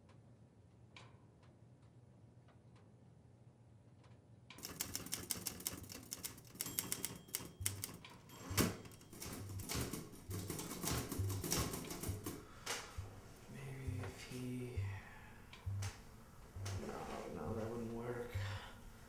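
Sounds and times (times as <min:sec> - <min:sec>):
manual typewriter clacking: 0:04.6 - 0:12.9
faint ticking: 0:11.2 - 0:16.8.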